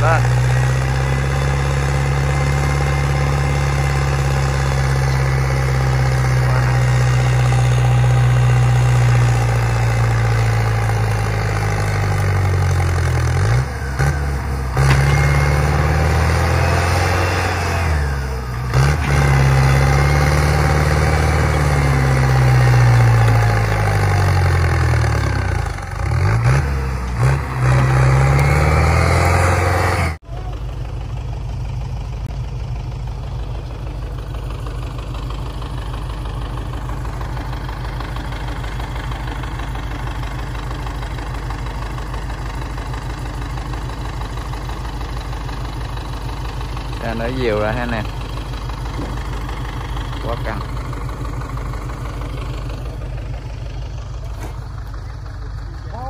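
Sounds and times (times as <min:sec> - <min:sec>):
tractor diesel engine labouring: 0:00.0 - 0:56.0.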